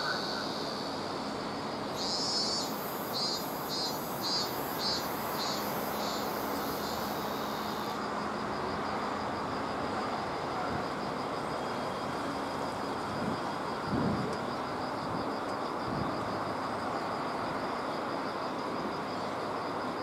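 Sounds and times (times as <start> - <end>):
outdoor hiss and rumble: 0.0 - 20.0.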